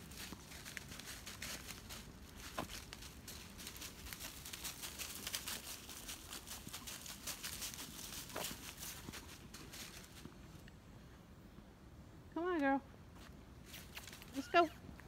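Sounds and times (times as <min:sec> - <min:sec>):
footsteps crunching dry leaves: 0:00.0 - 0:10.3.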